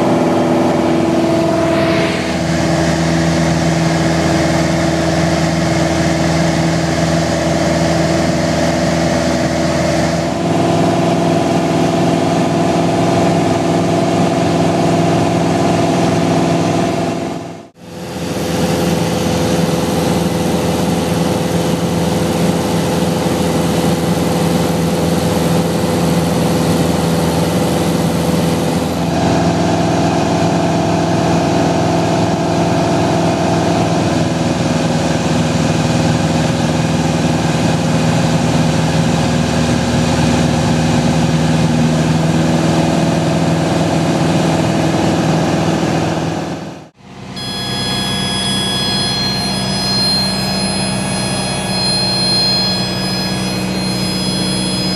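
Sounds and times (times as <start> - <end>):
airplane engine droning in cabin: 0.0 - 31.0, 47.3 - 54.9.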